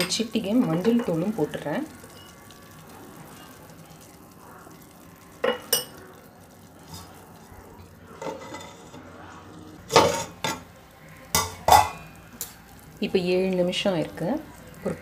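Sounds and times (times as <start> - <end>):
water boiling in a pot: 0.0 - 15.0
metal plate clattering on pot: 8.2 - 9.0, 9.9 - 10.7, 11.3 - 12.0.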